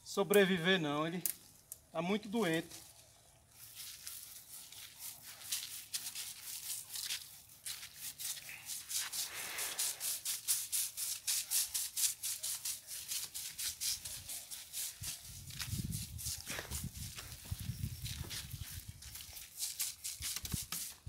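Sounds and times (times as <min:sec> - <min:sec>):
pressure sprayer hissing: 0:08.9 - 0:10.7.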